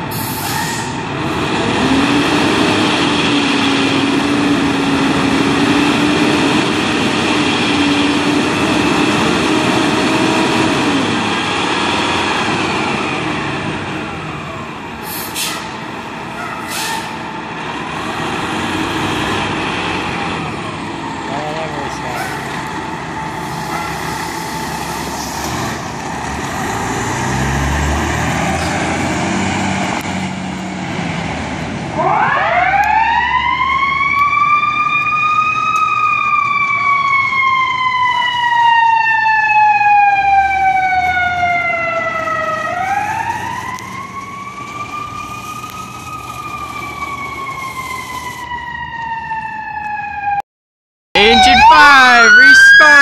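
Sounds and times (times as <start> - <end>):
fire truck diesel engine rumbling: 0.0 - 50.4, 51.2 - 53.0
mechanical siren wailing: 31.9 - 50.4, 51.2 - 53.0.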